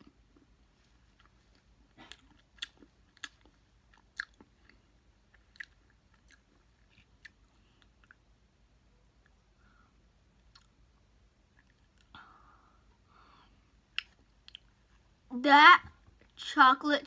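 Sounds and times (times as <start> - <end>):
chewing with soft crunches: 0.0 - 8.4, 10.3 - 12.2, 13.9 - 15.2.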